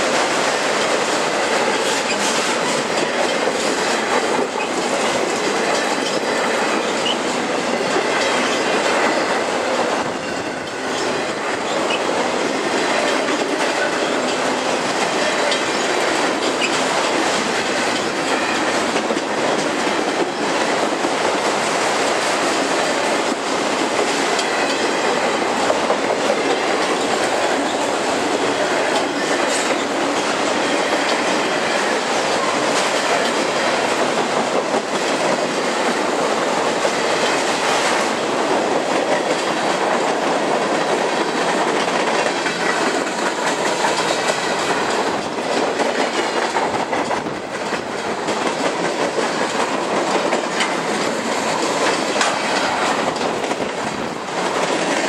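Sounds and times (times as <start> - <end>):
wheels clicking over rail joints: 0.0 - 55.0
freight cars rumbling and rattling: 38.2 - 55.0.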